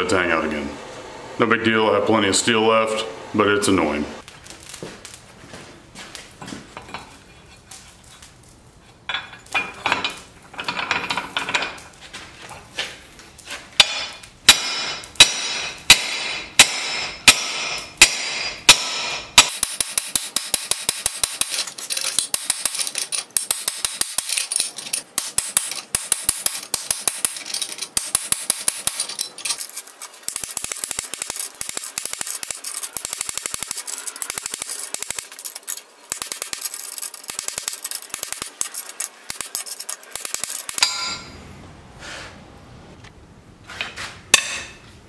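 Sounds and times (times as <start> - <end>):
hammer ringing on hot steel: 13.8 - 21.4, 40.7 - 41.4, 44.3 - 44.8.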